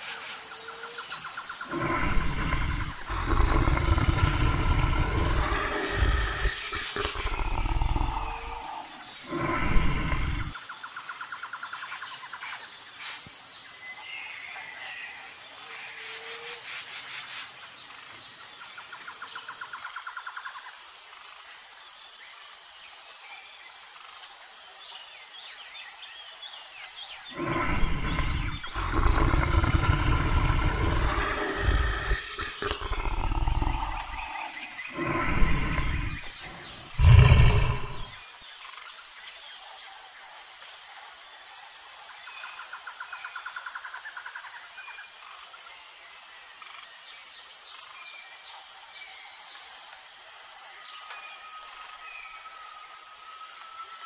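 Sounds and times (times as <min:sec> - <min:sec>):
faint chirps: 0:00.0 - 0:10.8, 0:27.1 - 0:38.3
deep animal roars: 0:01.6 - 0:10.6, 0:27.3 - 0:38.2.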